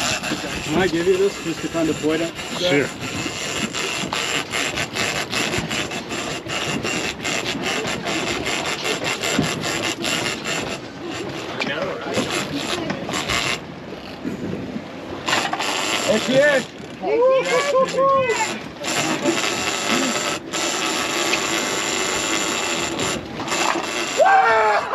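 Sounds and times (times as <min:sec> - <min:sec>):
fishing reel ratcheting: 0:00.0 - 0:14.2, 0:15.2 - 0:24.2.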